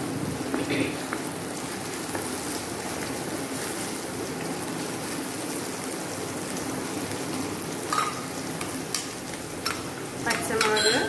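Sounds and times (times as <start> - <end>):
onions sizzling in oil: 0.0 - 11.0.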